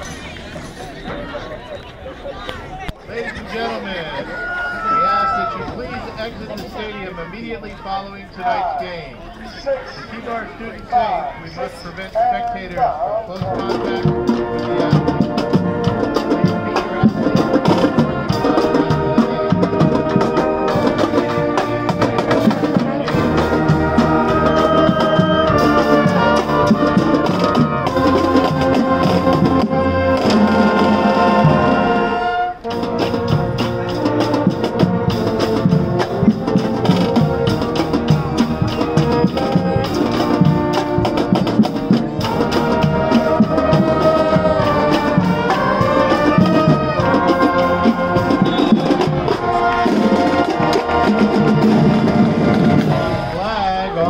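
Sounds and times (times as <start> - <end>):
marching band playing: 3.2 - 54.0.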